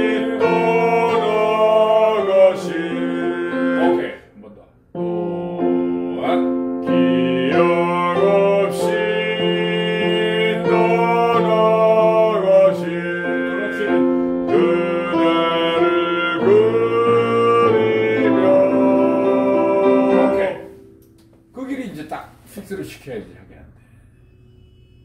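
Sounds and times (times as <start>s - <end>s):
man singing classical style: 0.0s - 4.3s, 5.0s - 20.8s
sustained instrumental accompaniment: 5.0s - 22.2s.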